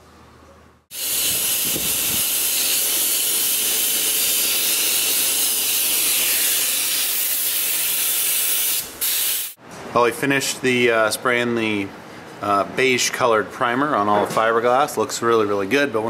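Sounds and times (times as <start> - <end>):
spray gun hissing: 0.9 - 9.6.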